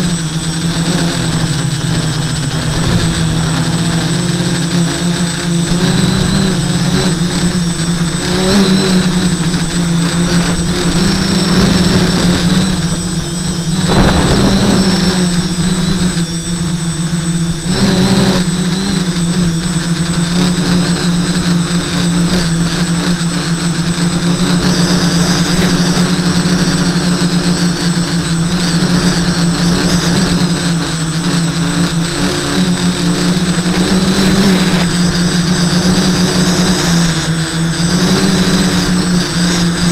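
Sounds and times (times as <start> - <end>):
quadcopter motors buzzing: 0.0 - 39.9.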